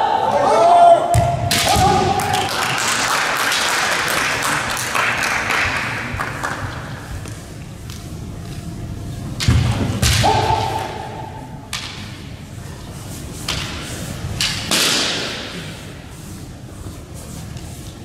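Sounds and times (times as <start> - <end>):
bamboo swords striking: 9.4 - 12.2, 13.5 - 15.6.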